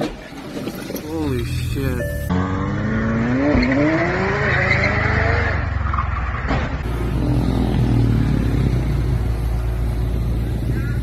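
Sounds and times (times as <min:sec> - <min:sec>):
car engine revving: 0:01.4 - 0:06.0, 0:06.8 - 0:11.0.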